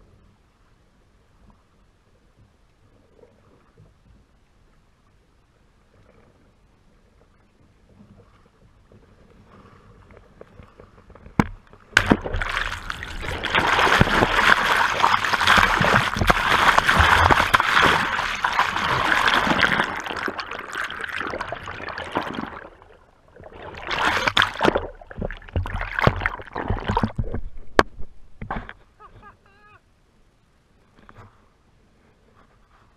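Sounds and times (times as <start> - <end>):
water splashing: 11.4 - 28.8
rushing gurgling water: 11.9 - 28.6.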